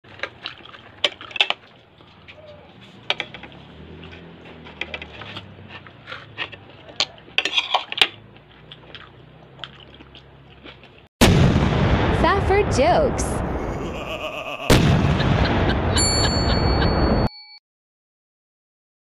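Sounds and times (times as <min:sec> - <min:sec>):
chewing: 0:00.0 - 0:11.1.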